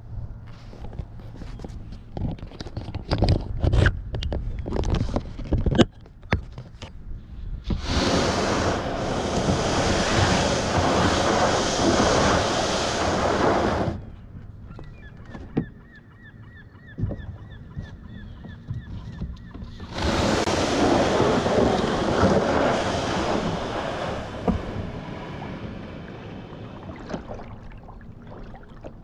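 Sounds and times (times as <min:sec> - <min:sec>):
knocks and scrapes: 0:00.5 - 0:07.0, 0:18.7 - 0:25.9
wind and waves rushing: 0:07.6 - 0:14.4, 0:19.7 - 0:29.0.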